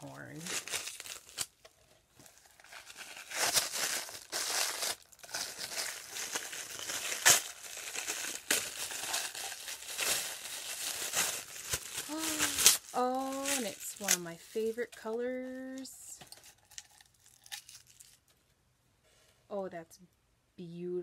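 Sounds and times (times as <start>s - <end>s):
packing wrap crinkling: 0.0s - 18.4s
wrap snapping: 2.6s - 14.2s.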